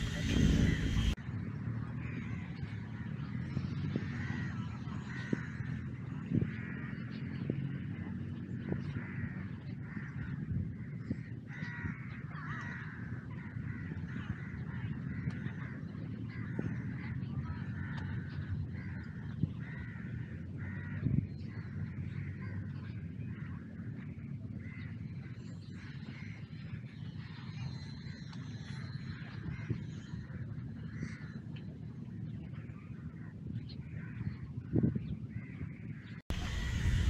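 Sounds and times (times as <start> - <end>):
birds harsh calls: 0.0 - 1.2, 8.8 - 23.5, 33.9 - 37.0
steady low rumble: 0.0 - 37.0.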